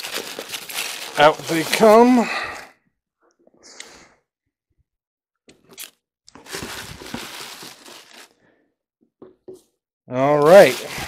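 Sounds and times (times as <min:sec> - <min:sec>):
packaging rustling and scraping: 0:00.0 - 0:02.2, 0:06.4 - 0:08.4, 0:10.4 - 0:11.0.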